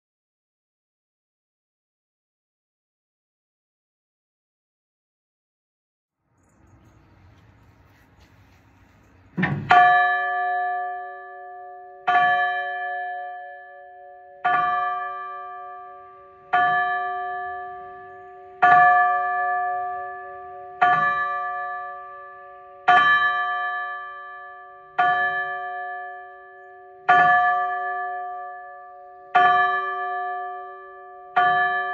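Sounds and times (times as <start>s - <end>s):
church bell tolling: 9.3s - 31.9s.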